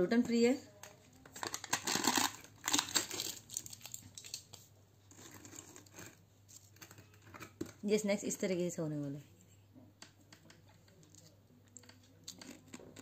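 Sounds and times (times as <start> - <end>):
snacks rustling: 1.3 - 7.7, 10.9 - 13.0
plastic seal crinkling: 1.3 - 7.8.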